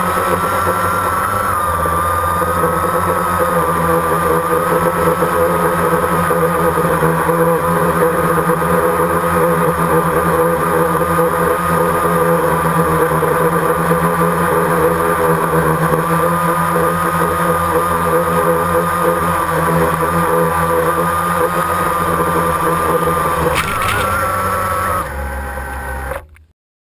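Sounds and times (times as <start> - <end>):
drone propellers whining: 0.0 - 26.4
drone knocking on landing: 23.2 - 24.9.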